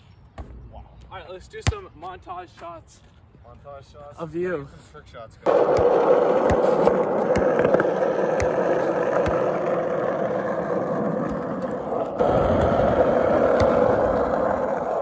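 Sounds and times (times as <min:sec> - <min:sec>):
skateboard wheels rolling on asphalt: 0:05.5 - 0:15.0.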